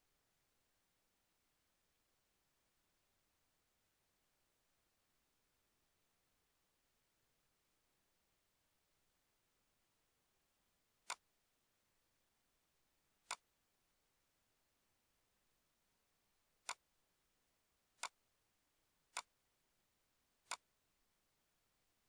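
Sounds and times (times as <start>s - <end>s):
computer mouse clicks: 11.0s - 11.2s, 16.6s - 16.8s, 19.1s - 19.3s, 20.4s - 20.7s.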